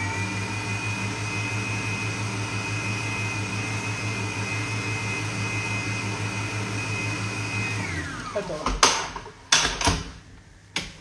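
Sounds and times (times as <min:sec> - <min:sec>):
stand mixer running: 0:00.0 - 0:08.5.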